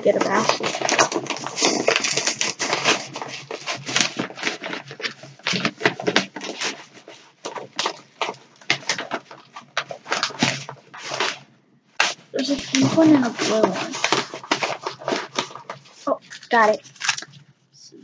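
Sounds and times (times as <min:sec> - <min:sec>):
plastic packets crinkling: 0:00.0 - 0:17.4.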